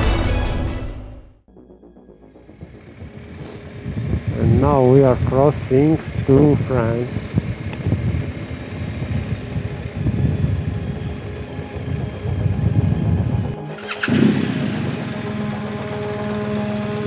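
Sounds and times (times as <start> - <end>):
motorcycle engine running: 1.8 - 17.0
wind noise on microphone: 2.6 - 15.1.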